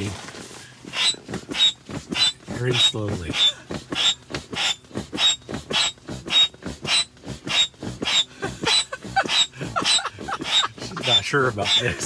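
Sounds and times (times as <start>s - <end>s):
person blowing into mattress valve: 0.8s - 2.5s, 3.3s - 12.0s
short squeaks: 0.9s - 12.0s
quick breath intake: 7.2s - 11.2s.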